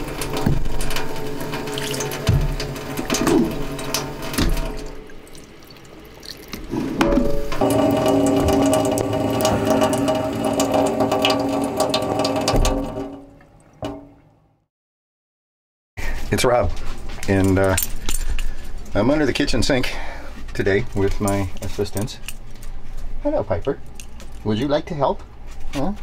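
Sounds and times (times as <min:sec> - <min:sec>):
faucet running into steel sink: 0:00.0 - 0:14.2.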